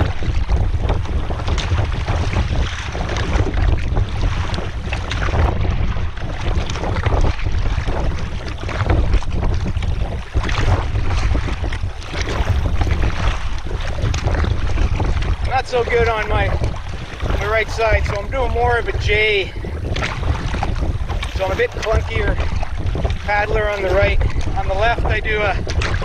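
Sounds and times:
water splashing against hull: 0.0s - 26.0s
wind buffeting microphone: 0.0s - 26.0s.

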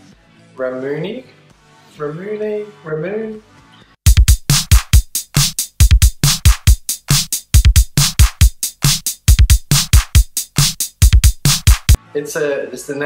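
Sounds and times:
electronic music with fast drum beat: 4.0s - 12.0s.

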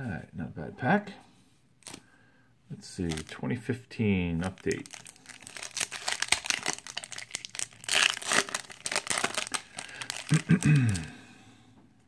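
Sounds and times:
wrapper tearing and crinkling: 1.8s - 2.0s, 3.0s - 3.3s, 4.4s - 11.1s.

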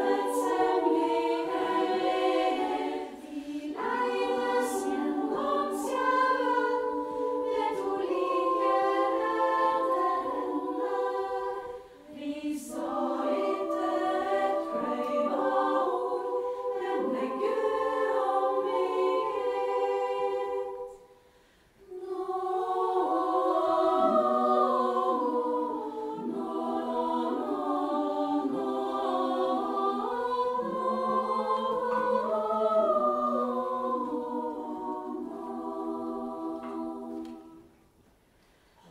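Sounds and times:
female choir singing: 0.0s - 37.9s.

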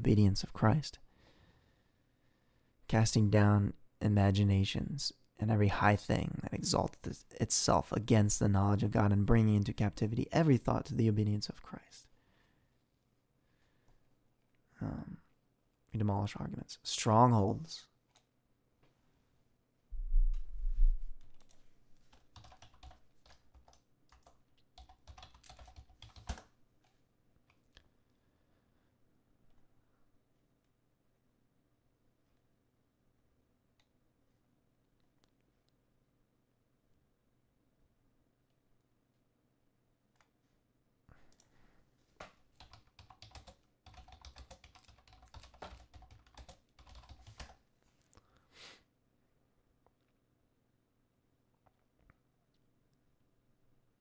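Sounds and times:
typing on computer keyboard: 21.4s - 27.0s, 42.6s - 47.6s.

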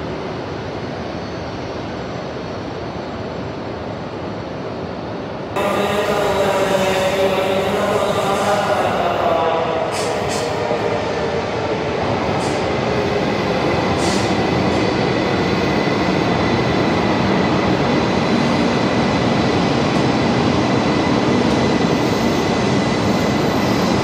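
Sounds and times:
train rushing rumble: 5.6s - 24.0s.

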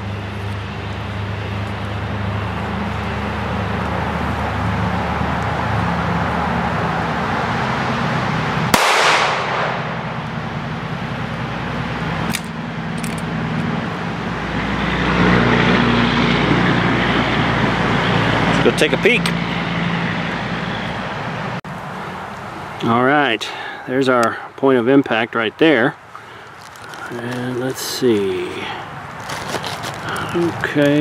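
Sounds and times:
pistol shot with echo: 8.7s - 10.0s.

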